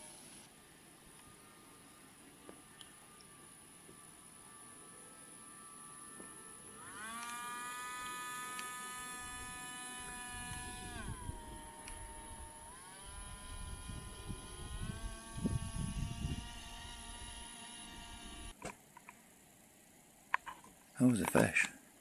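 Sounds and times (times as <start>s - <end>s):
high-pitched motor whine: 0.0s - 18.6s
wind rumbling on microphone: 10.1s - 17.4s.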